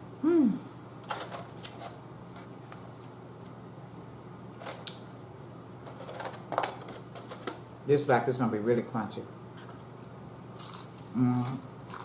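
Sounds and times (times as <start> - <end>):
person humming: 0.2 - 0.8, 11.1 - 11.6.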